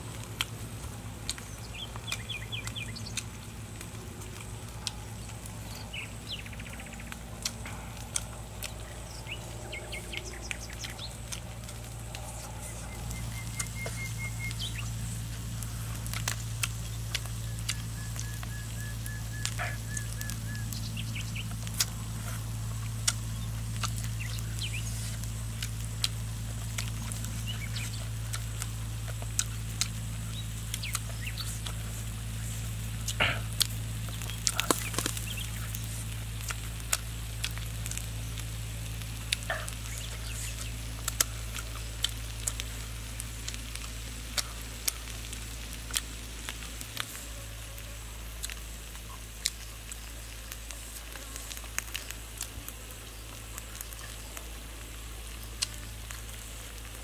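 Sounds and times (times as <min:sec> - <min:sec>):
steady low hum: 0:00.0 - 0:57.0
birds chirping: 0:00.1 - 0:45.2
sharp small clicks: 0:00.1 - 0:47.2, 0:55.3 - 0:57.0.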